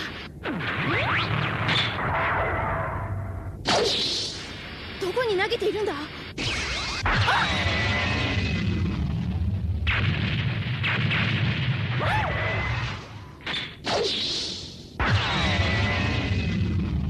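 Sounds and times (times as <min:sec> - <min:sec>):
low rumble: 0:00.0 - 0:03.7, 0:07.0 - 0:13.4.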